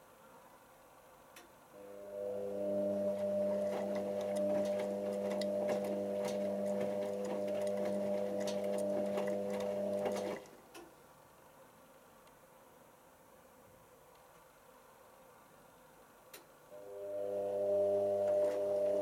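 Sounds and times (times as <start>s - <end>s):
washing machine motor humming: 1.8s - 10.6s, 16.8s - 19.0s.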